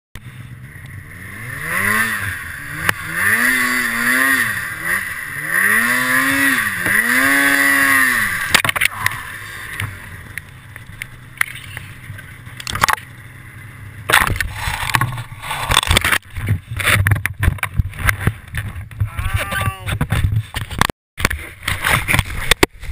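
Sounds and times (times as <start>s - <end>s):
snowmobile engine revving: 0.4s - 10.4s
snowmobile hitting a tree: 1.0s - 10.1s, 14.0s - 22.9s
knocks and rustling: 14.1s - 22.9s.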